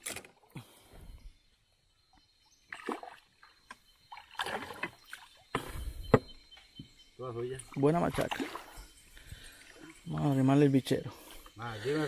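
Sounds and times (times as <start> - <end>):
fish splashing in water: 4.1 - 5.4.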